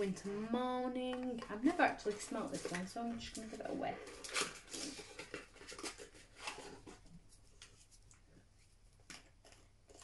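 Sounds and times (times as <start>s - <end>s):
plastic bottle rustles: 1.0s - 7.9s.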